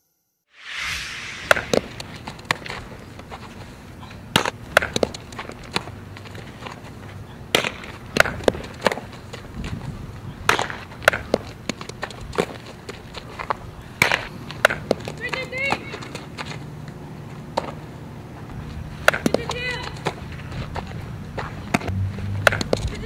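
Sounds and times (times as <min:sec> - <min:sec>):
outdoor background noise: 0:00.6 - 0:23.0
softball hit with bat: 0:04.4 - 0:05.2, 0:07.5 - 0:09.0, 0:10.5 - 0:11.4, 0:19.0 - 0:20.2, 0:21.7 - 0:23.0.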